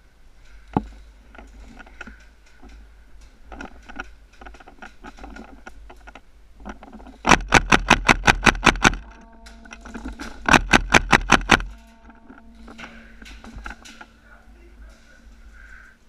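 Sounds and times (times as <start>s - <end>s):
rapid airsoft gun shots: 7.3s - 9.0s, 10.5s - 11.7s.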